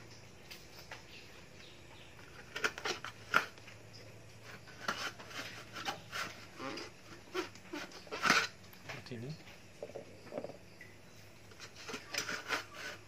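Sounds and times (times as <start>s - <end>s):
sponge rubbing in plastic bottle: 4.4s - 8.5s, 11.6s - 13.0s.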